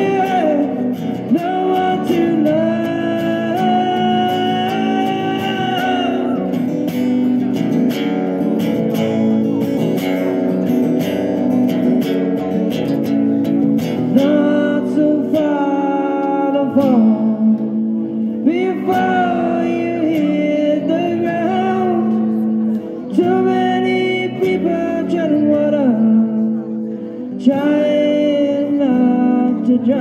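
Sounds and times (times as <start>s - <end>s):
man singing: 0.0s - 7.0s, 14.0s - 30.0s
acoustic guitar strumming: 0.0s - 30.0s.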